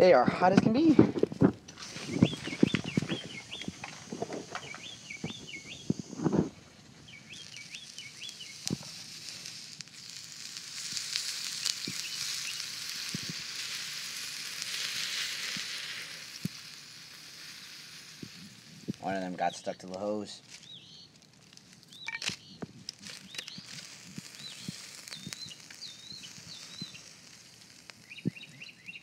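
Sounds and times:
water hissing on hot metal: 0:01.3 - 0:22.0, 0:22.8 - 0:29.0.

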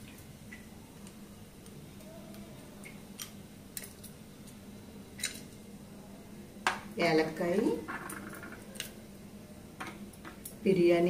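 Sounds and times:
spices crackling in hot oil: 0:00.0 - 0:05.8, 0:09.8 - 0:11.0
faint steady hum: 0:00.0 - 0:11.0.

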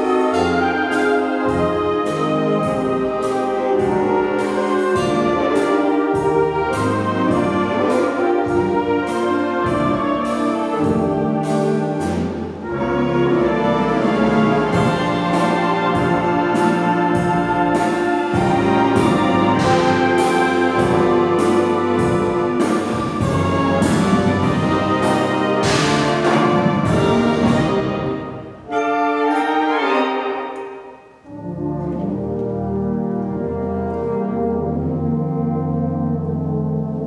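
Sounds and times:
wind band playing: 0:00.0 - 0:37.0
percussion hits: 0:14.0 - 0:28.7.

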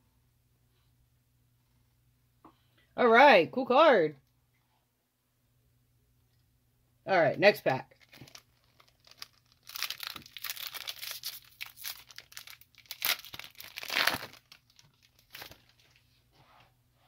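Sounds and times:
foil wrapper tearing and crinkling: 0:07.9 - 0:15.8.

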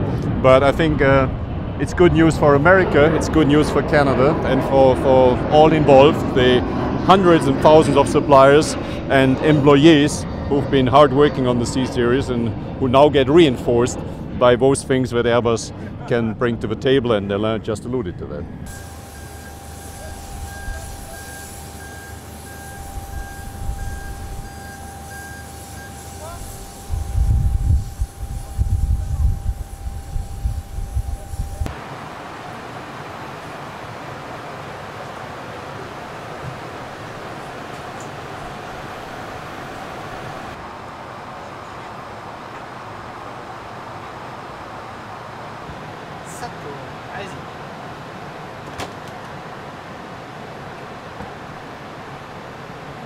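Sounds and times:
continuous whine: 0:00.0 - 0:53.0
low steady rumble: 0:18.4 - 0:31.7
airliner cabin rushing hum: 0:18.5 - 0:41.1, 0:47.5 - 0:53.0
electronic beeps: 0:18.7 - 0:26.2.

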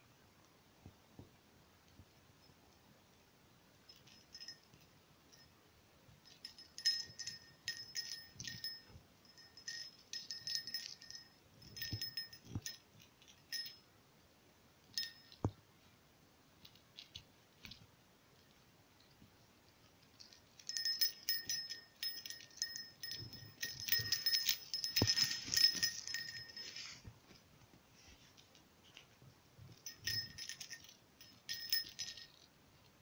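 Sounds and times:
jingle bell jingling: 0:03.9 - 0:05.6, 0:06.2 - 0:13.8, 0:14.9 - 0:15.6, 0:18.4 - 0:27.4, 0:28.0 - 0:33.0.

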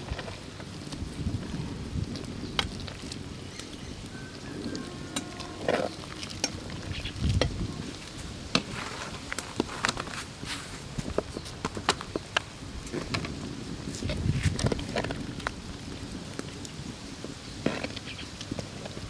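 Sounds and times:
metal ladle stirring in clay pot: 0:04.5 - 0:10.0.

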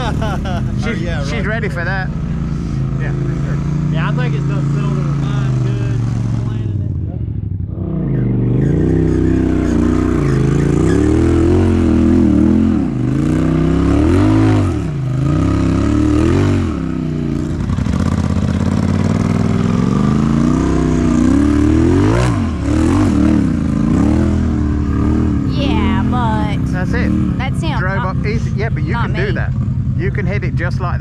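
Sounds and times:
utility vehicle engine revving: 0:00.0 - 0:31.0.

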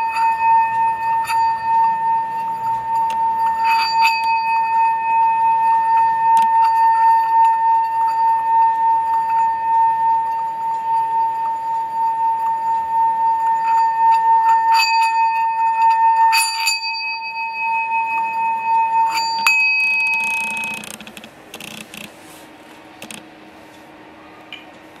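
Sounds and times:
singing bowl ringing tone: 0:00.0 - 0:20.8
faint handling sounds: 0:20.0 - 0:24.0.

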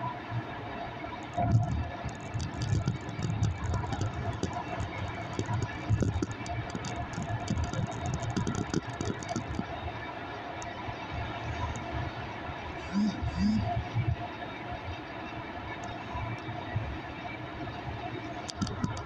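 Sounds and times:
small rattles and ticks: 0:01.2 - 0:09.9, 0:18.3 - 0:19.0.

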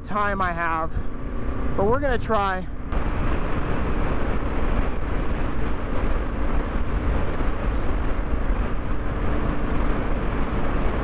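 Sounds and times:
motorcycle engine running: 0:00.1 - 0:11.0
wind rumble on microphone: 0:02.7 - 0:11.0.

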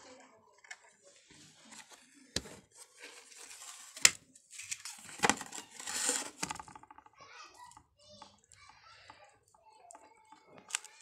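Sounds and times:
rustling and scraping: 0:00.0 - 0:11.0.

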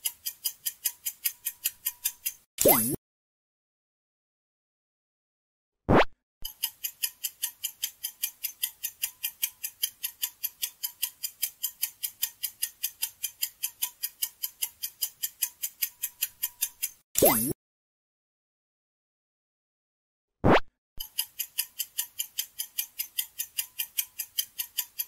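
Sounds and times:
clock ticking fast: 0:00.0 - 0:02.9, 0:06.4 - 0:17.6, 0:21.0 - 0:25.0.

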